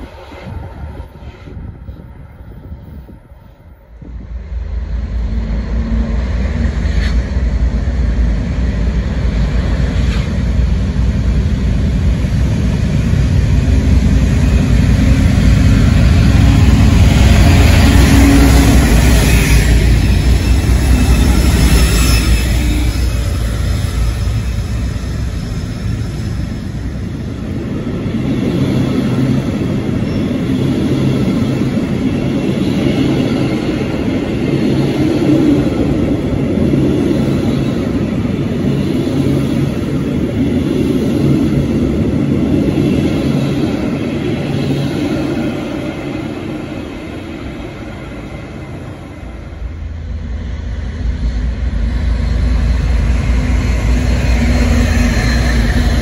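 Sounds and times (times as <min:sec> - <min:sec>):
diesel locomotive engine: 0:00.0 - 0:56.0
train wheels clattering on rail: 0:05.1 - 0:48.8.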